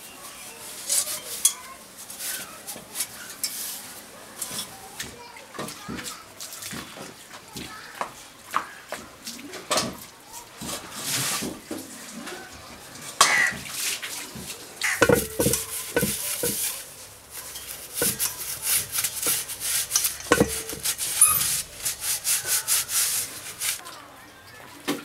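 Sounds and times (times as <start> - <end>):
cloth rubbing on metal: 14.8 - 23.8
metal clanks: 14.8 - 23.8.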